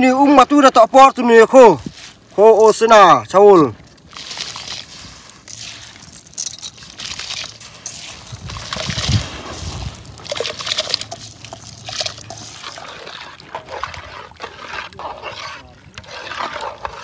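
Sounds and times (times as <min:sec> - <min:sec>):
water sloshing and trickling: 0:01.6 - 0:17.0.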